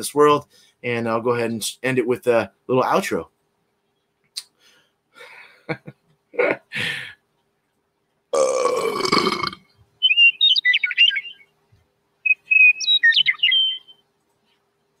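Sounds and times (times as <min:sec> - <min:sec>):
songbird warbling: 0:10.0 - 0:11.6, 0:12.2 - 0:14.0.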